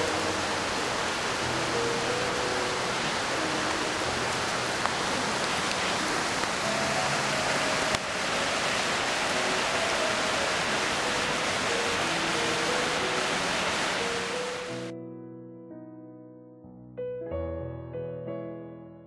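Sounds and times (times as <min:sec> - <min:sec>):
water rushing over rocks: 0:00.0 - 0:14.9
soft background music: 0:00.0 - 0:19.0.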